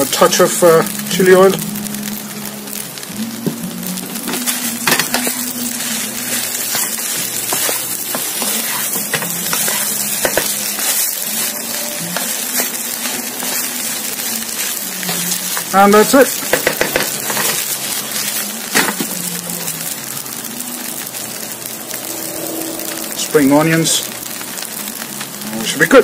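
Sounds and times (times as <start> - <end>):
rice sizzling in a wok: 0.0 - 26.0
wooden spatula scraping a pan: 4.4 - 19.0.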